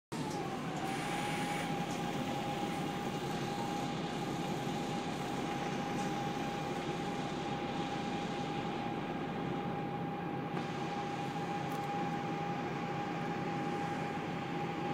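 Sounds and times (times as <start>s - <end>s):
bus engine idling rumble: 0.2s - 14.9s.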